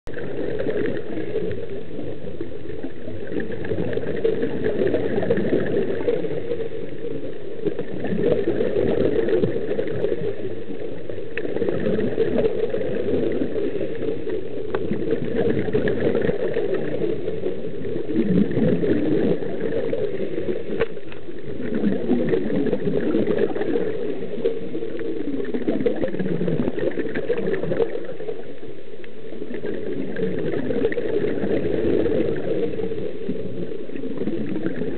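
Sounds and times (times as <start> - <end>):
muffled wash of water: 0.0 - 34.9
bubbles gurgling underwater: 0.1 - 34.9.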